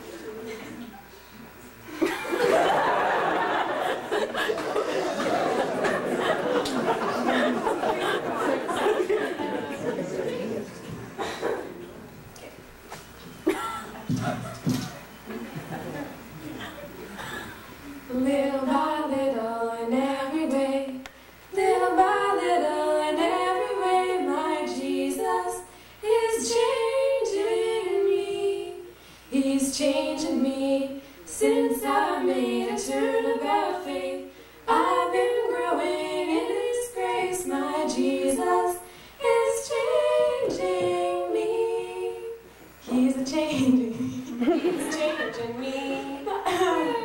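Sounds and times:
women singing unaccompanied: 0:18.1 - 0:44.2, 0:44.8 - 0:47.0.

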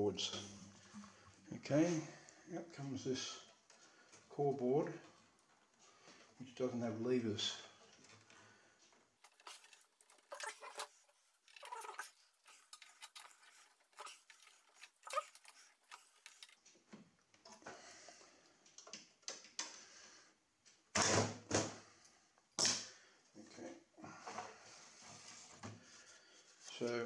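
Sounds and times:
screwdriver scraping and clicking metal: 0:09.2 - 0:16.6.

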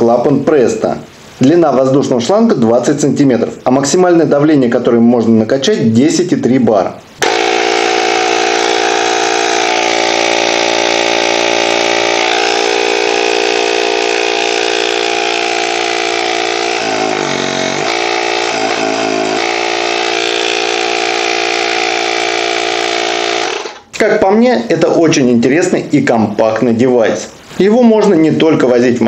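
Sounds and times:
tyre compressor humming: 0:07.2 - 0:23.9.

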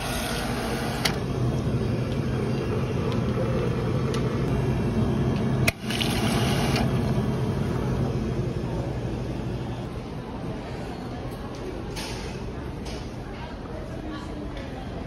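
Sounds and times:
soda fountain pouring fizzy drink: 0:05.1 - 0:07.3.

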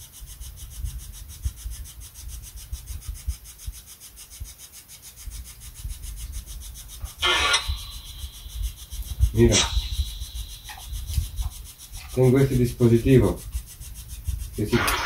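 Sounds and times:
rumbling and rubbing on microphone: 0:00.0 - 0:15.0
short rasp: 0:05.7 - 0:15.0.

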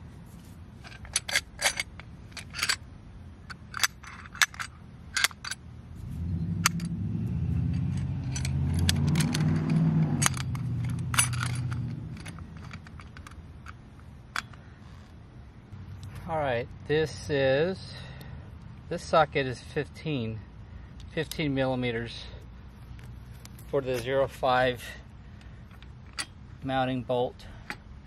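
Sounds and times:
metallic clinks of hardware on metal: 0:00.8 - 0:02.8, 0:07.7 - 0:15.0
low engine hum: 0:04.7 - 0:17.4.

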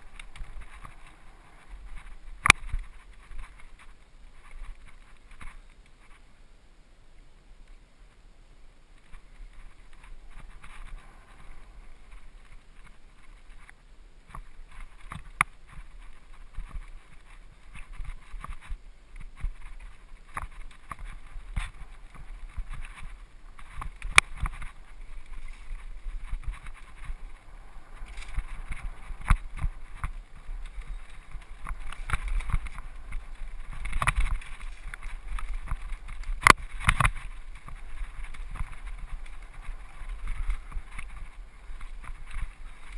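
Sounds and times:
bike and mount rattling: 0:00.0 - 0:06.2, 0:08.9 - 0:42.9
bike tyres rumbling on dirt: 0:00.0 - 0:06.2, 0:08.9 - 0:42.9
wind on microphone: 0:14.6 - 0:42.9.

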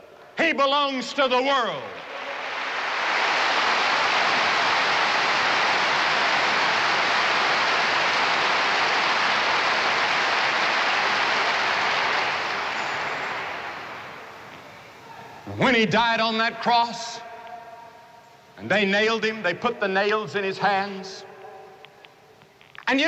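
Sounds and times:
large crowd applauding: 0:02.0 - 0:14.5.

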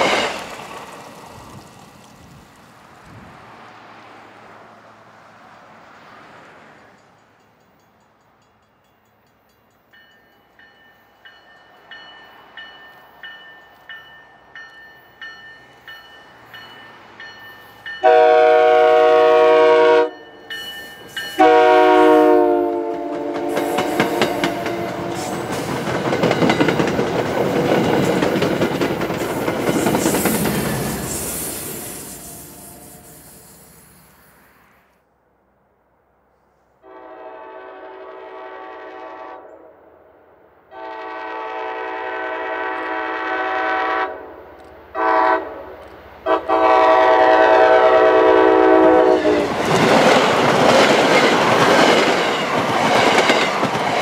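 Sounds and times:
train bell dinging: 0:06.7 - 0:19.2, 0:20.0 - 0:22.8, 0:23.4 - 0:27.2, 0:29.8 - 0:31.3
train horn blasts: 0:18.0 - 0:20.3, 0:21.3 - 0:25.4, 0:36.8 - 0:39.7, 0:40.7 - 0:49.5
train wheels clattering over rail joints: 0:23.2 - 0:31.4.

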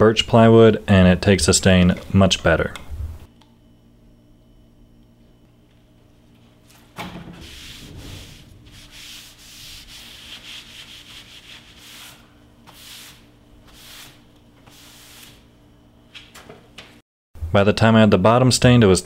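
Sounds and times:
rag wiping wood: 0:07.3 - 0:15.4.

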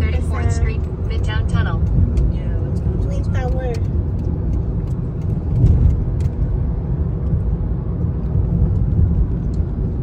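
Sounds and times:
car road and engine rumble: 0:00.0 - 0:10.0.

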